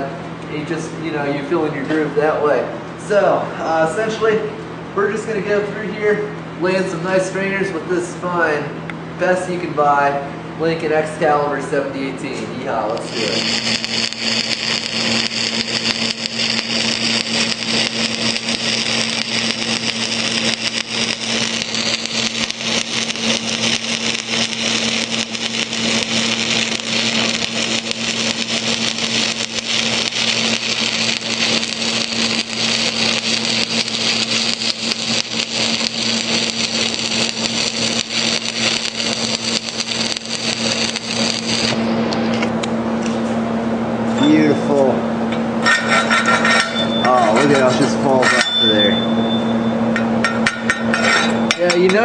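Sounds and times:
steady low hum: 0:00.0 - 0:52.0
welding arc crackling and sizzling: 0:12.2 - 0:42.5, 0:45.6 - 0:49.2, 0:49.9 - 0:52.0.

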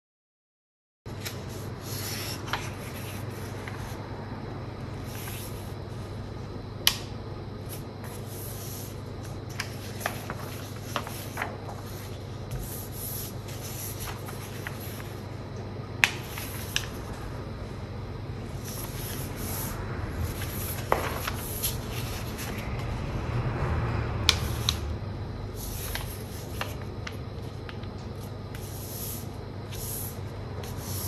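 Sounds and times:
paper rustling and folding: 0:01.1 - 0:04.0, 0:07.7 - 0:15.2, 0:16.0 - 0:17.2, 0:18.6 - 0:23.1, 0:25.6 - 0:31.0
low hum: 0:02.6 - 0:28.6
paper crackles: 0:08.0 - 0:15.2, 0:20.3 - 0:22.9.

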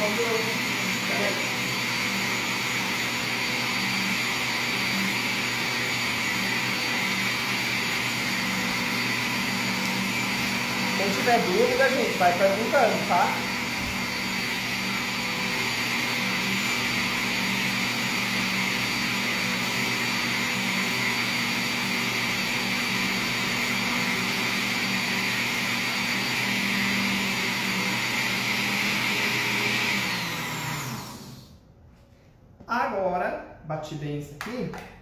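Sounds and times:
electric blender running: 0:00.0 - 0:31.6.

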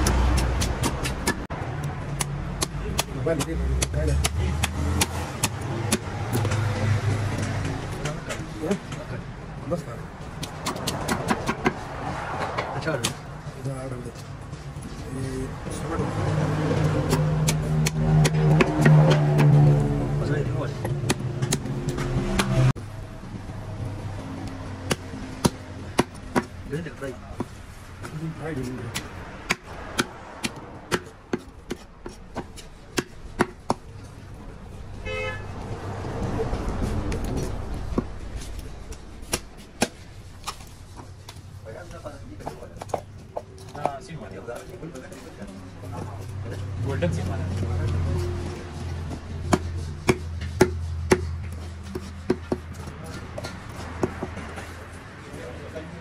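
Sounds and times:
knife chopping on cutting board: 0:49.4 - 0:54.6.

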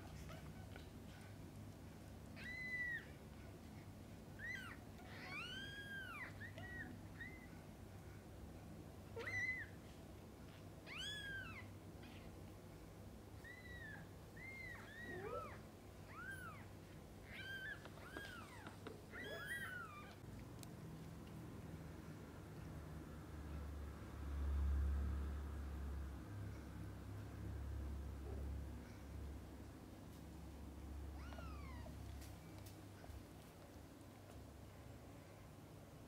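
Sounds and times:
kittens mewing: 0:02.3 - 0:03.3, 0:13.4 - 0:20.3.

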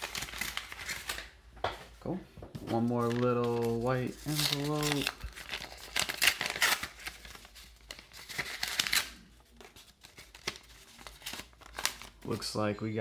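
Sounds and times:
paper envelope tearing: 0:03.0 - 0:12.3.

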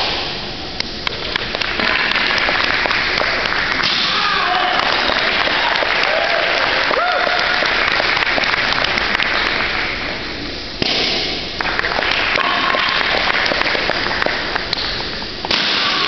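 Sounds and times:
audience applauding: 0:01.2 - 0:10.0, 0:11.6 - 0:14.7.

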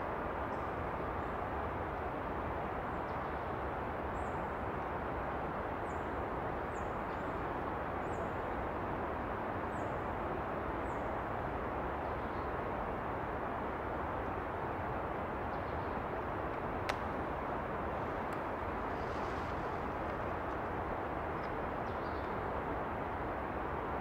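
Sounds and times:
steady rushing noise: 0:07.4 - 0:24.0.

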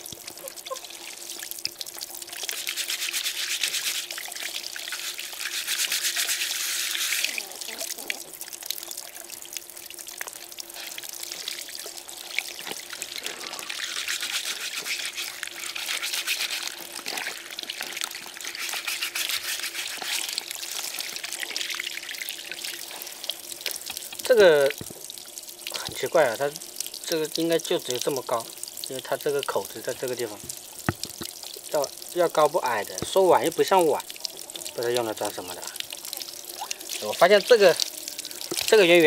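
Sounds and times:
hose water splashing: 0:00.0 - 0:39.0
bristle brush scrubbing: 0:02.5 - 0:04.1, 0:04.8 - 0:07.4, 0:13.3 - 0:21.2.

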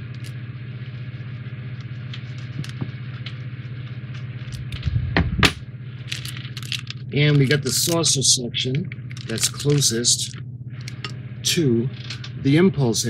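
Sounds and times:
steady low hum: 0:00.0 - 0:13.0
plastic bags crinkling: 0:06.0 - 0:07.9, 0:09.0 - 0:10.0.

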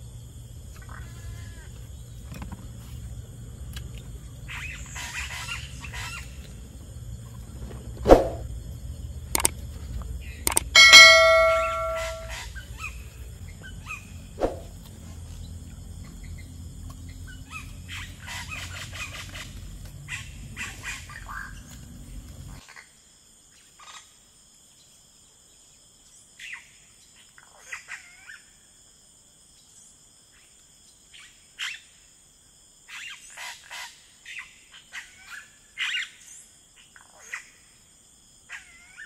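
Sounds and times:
faint scattered clicks: 0:09.4 - 0:12.2
bell-like ding: 0:10.5 - 0:12.3
sharp knocks: 0:10.5 - 0:12.3.

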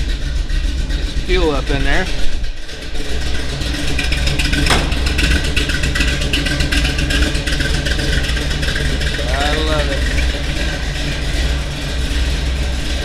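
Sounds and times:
truck engine idling: 0:00.0 - 0:13.0
sharp knock: 0:04.7 - 0:05.4.

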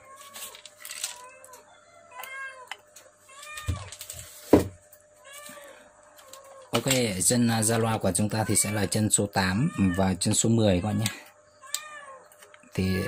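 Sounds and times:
cat meowing: 0:08.4 - 0:12.3.

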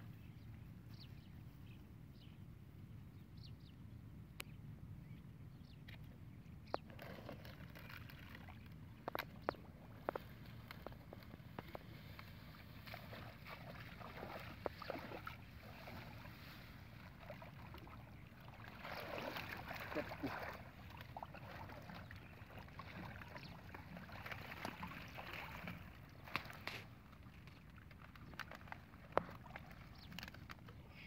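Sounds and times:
splashing in muddy water: 0:06.8 - 0:30.8.

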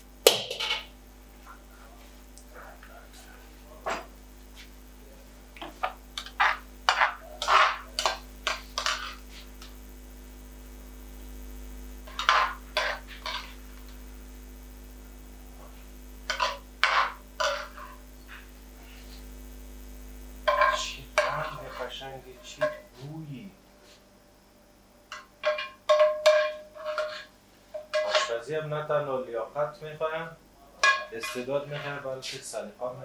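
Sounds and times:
low hum of kitchen equipment: 0:00.0 - 0:33.0
metal utensils clinking on pans: 0:20.5 - 0:21.8, 0:25.1 - 0:28.4, 0:30.8 - 0:32.0.

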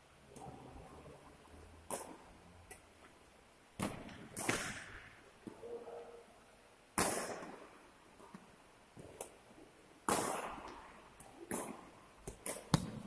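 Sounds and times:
racket hitting shuttlecock: 0:03.8 - 0:05.6, 0:10.0 - 0:13.0.

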